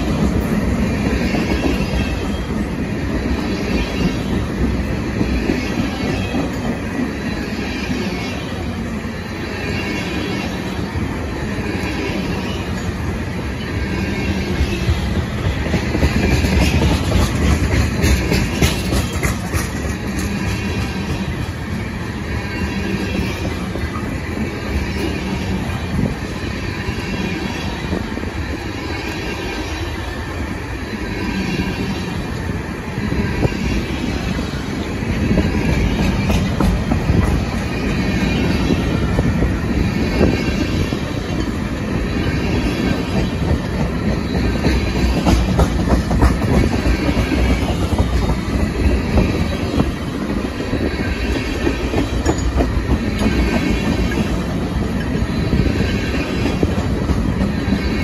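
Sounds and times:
freight train rolling past: 0.0 - 58.0
wheels clacking over rail joints: 14.5 - 21.8, 35.3 - 58.0.

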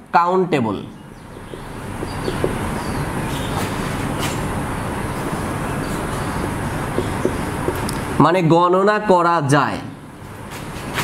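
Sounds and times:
steady rushing mechanical noise: 1.1 - 8.2
marker on a whiteboard: 1.2 - 4.6, 5.2 - 8.3.

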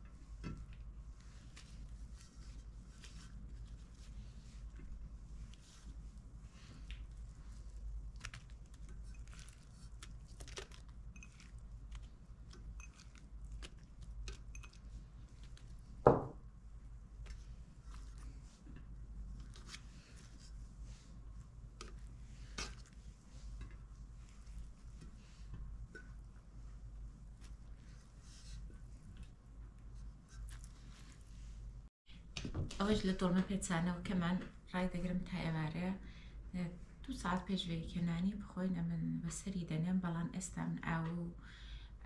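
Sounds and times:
food rustling and squishing: 0.0 - 31.9.

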